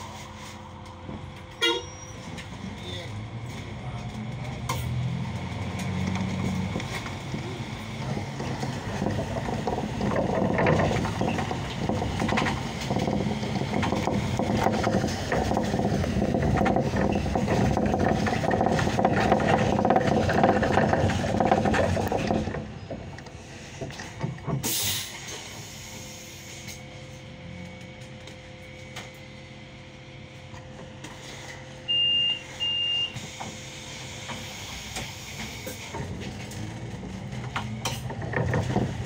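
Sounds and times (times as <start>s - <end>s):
bus engine and road noise: 0.0s - 39.0s
compressed air hiss: 24.6s - 26.8s.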